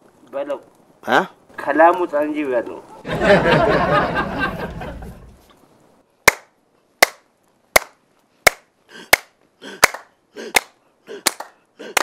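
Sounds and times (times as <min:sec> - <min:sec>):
voice: 0:00.3 - 0:02.9
hand claps at steady beat: 0:07.8 - 0:12.0.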